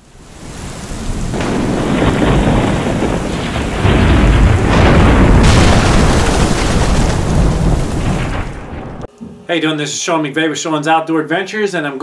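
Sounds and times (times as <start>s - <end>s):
rain: 0.0s - 9.1s
rolling thunder: 0.0s - 9.1s
sharp thunder crash: 0.2s - 9.1s.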